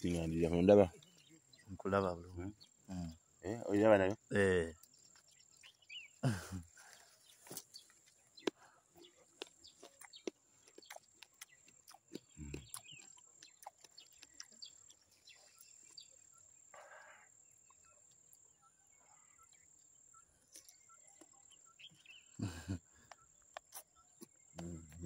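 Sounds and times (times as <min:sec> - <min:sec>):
teeth biting into fruit: 0:07.4 - 0:15.7, 0:23.1 - 0:25.0.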